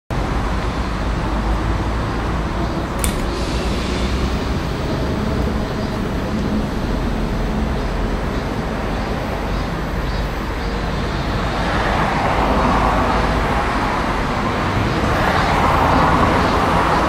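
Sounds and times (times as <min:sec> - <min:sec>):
short click: 0:03.0 - 0:03.4.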